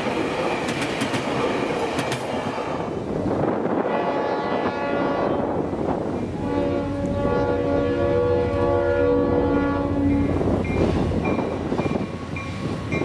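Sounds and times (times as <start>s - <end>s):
train rolling past: 0.0s - 13.0s
locomotive horn chord: 3.8s - 5.5s, 6.4s - 10.4s.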